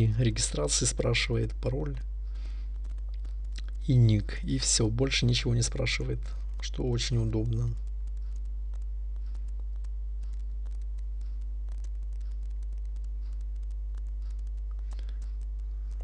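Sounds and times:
electrical mains hum: 0.0s - 16.0s
faint typing clicks: 2.4s - 3.8s, 5.7s - 16.0s.

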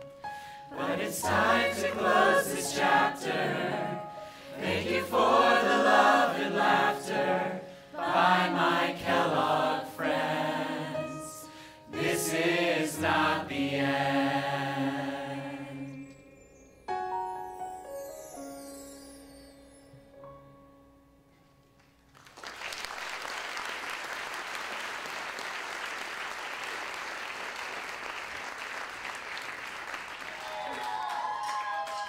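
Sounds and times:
mixed chorus singing: 0.7s - 16.2s.

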